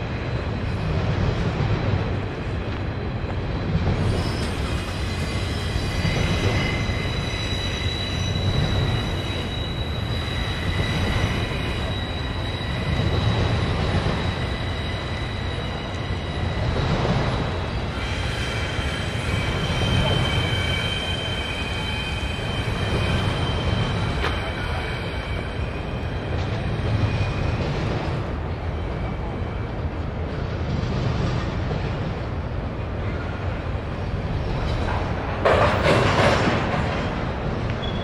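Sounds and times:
train rumbling over bridge: 0.0s - 38.0s
high thin wheel squeal: 4.0s - 26.5s, 37.8s - 38.0s.

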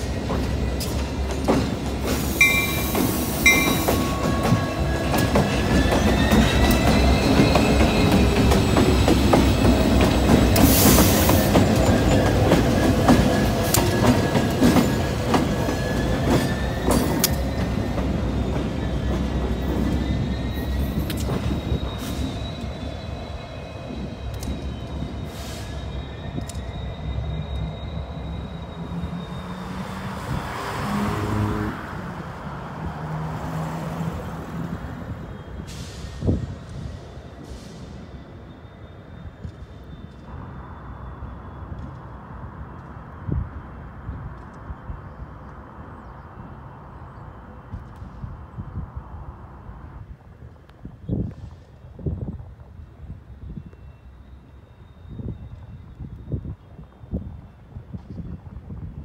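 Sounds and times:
wheel flanges squealing: 0.0s - 31.1s
diesel locomotives passing: 0.0s - 59.0s.

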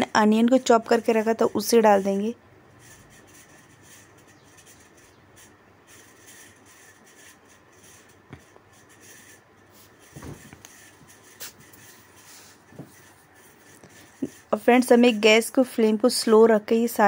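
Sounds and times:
spatula scraping onions in pan: 0.2s - 10.0s.

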